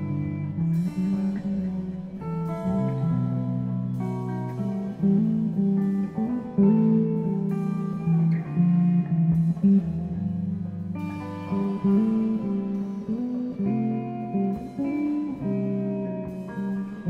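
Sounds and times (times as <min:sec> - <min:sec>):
plucked guitar melody: 0:00.0 - 0:17.0.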